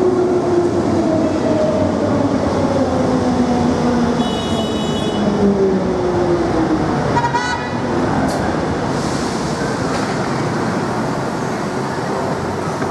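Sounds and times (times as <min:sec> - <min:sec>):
train rumble and hum: 0:00.0 - 0:04.2, 0:07.9 - 0:12.9.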